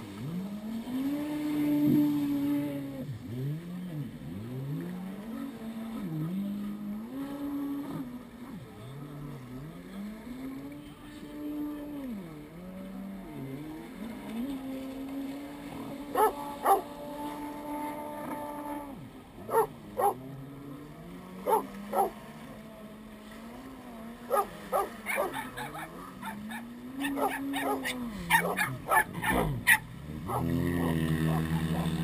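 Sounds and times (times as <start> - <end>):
jet ski engines revving: 0.0 - 32.0
dog barking: 16.2 - 16.8, 19.5 - 20.2, 21.5 - 22.1, 24.3 - 30.5.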